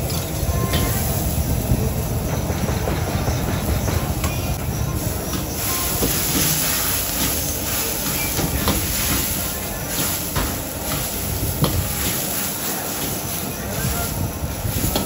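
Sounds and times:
gas burner rushing: 0.0s - 15.0s
food sizzling in a wok: 4.5s - 15.0s.

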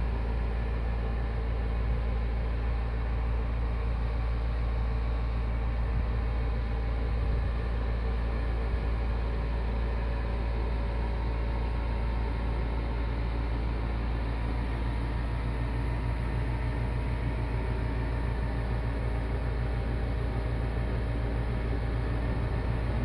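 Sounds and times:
steady low rumble: 12.8s - 23.0s.

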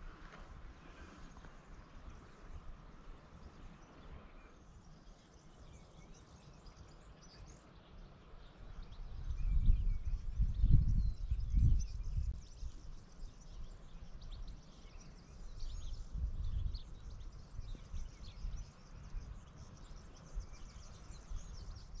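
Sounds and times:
birds chirping: 0.0s - 22.0s
wind buffeting microphone: 8.4s - 22.0s.

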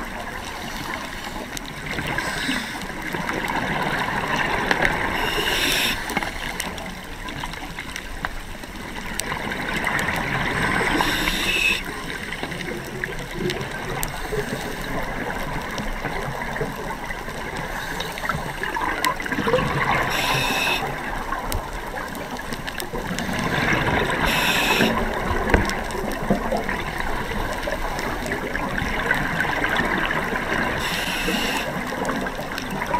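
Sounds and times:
underwater exhaled air bubbling: 0.0s - 32.9s
regulator hissing: 5.2s - 6.2s, 10.9s - 11.8s, 20.1s - 21.0s, 24.2s - 25.0s, 30.8s - 31.7s.

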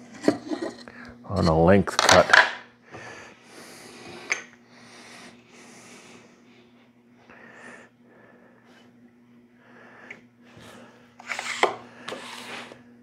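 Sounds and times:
low steady hum: 0.0s - 13.0s
soft breathing: 2.8s - 9.0s, 9.6s - 11.2s.

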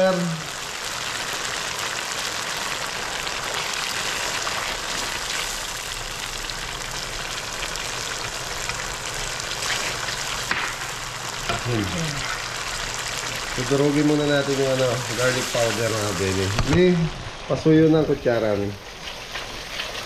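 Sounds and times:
sauce sizzling in a wok: 0.0s - 20.0s
metal spatula stirring: 18.9s - 20.0s.

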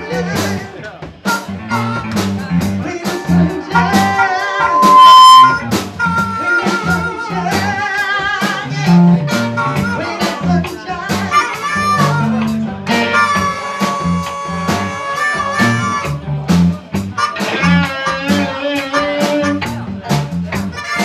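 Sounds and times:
bass: 0.0s - 21.0s
drums: 0.0s - 21.0s
electric guitars: 0.0s - 21.0s
amplified harmonica: 1.3s - 2.2s, 3.1s - 8.3s, 8.9s - 10.6s, 11.2s - 16.2s, 17.2s - 19.8s, 20.6s - 21.0s.

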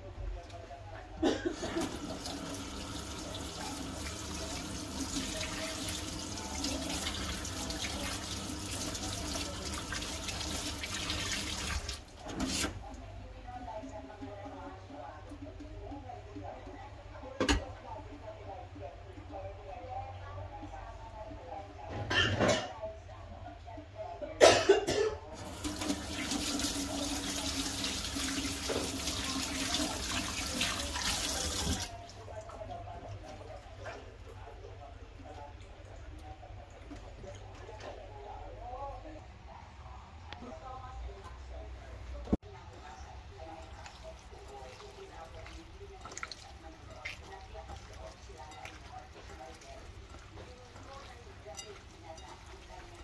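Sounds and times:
water running from a tap into a sink: 1.7s - 12.8s, 25.4s - 32.1s, 43.5s - 53.0s.

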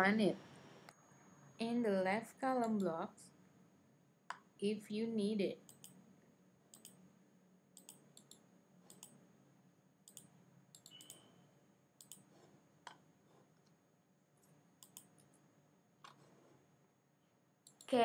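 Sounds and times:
faint computer mouse clicks: 5.7s - 6.0s, 6.7s - 7.0s, 7.8s - 9.2s, 10.1s - 11.3s, 12.0s - 12.3s, 14.8s - 15.3s.

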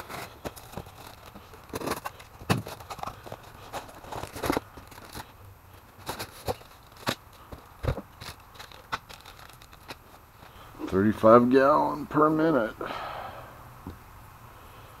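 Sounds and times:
packaging crinkling and clicking: 0.0s - 10.6s.

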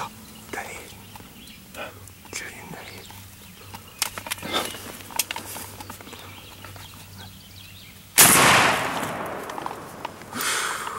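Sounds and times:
shotgun blast with echo: 8.2s - 9.9s.

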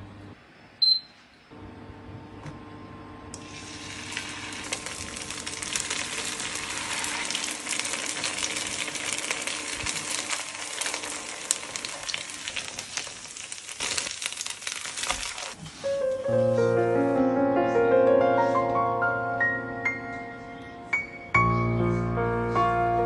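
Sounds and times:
patties sizzling in a pan: 3.4s - 15.6s.

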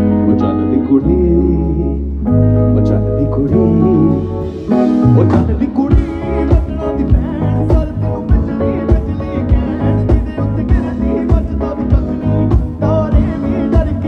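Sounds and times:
bass guitar: 0.0s - 14.0s
keyboard chords: 0.0s - 14.0s
man singing: 0.0s - 14.0s.

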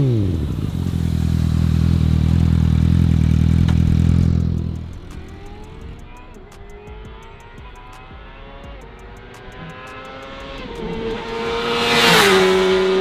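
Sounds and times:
motorcycle passing at high speed: 0.0s - 6.0s, 9.2s - 13.0s.

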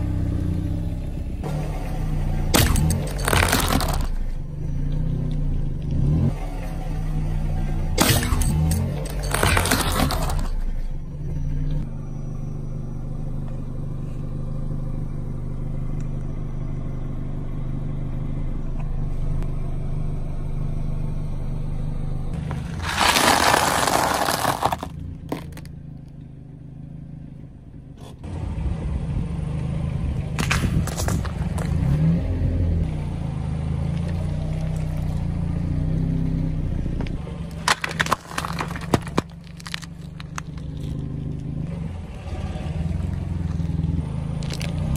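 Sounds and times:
car engine running at low speed: 0.0s - 44.9s
tyre crushing objects: 2.5s - 4.1s, 8.0s - 10.6s, 22.4s - 25.7s, 37.5s - 41.2s
sharp cracks and crackles: 2.6s - 4.2s, 22.6s - 25.7s, 37.6s - 41.3s.

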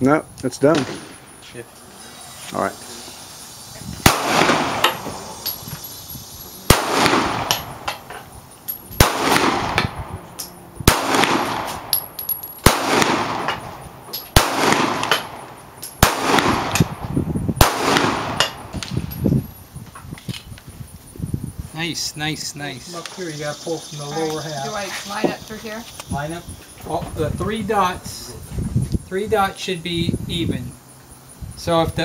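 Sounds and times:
pistol shots with echo: 4.0s - 5.4s, 6.7s - 8.0s, 9.0s - 10.2s, 10.8s - 12.0s, 12.6s - 13.7s, 14.3s - 17.0s, 17.6s - 18.7s.

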